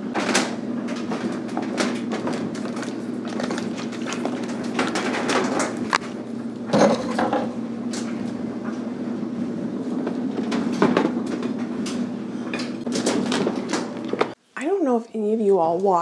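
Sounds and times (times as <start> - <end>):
laundry machine humming: 0.0 - 14.4
knocks and rustles: 0.1 - 8.1.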